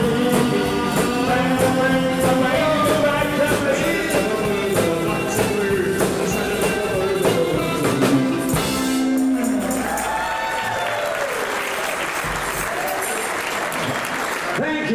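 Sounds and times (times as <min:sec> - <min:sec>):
rockabilly band playing: 0:00.0 - 0:14.9
audience applause and cheering: 0:08.6 - 0:14.9.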